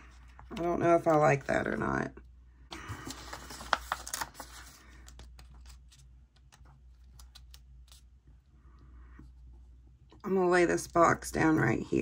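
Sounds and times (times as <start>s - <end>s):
paper rustling: 2.7s - 8.1s.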